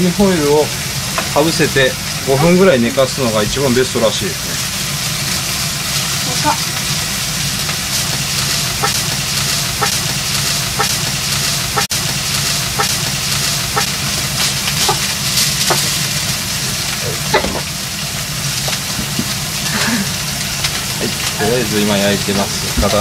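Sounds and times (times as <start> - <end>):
steak sizzling in a frying pan: 0.0 - 23.0.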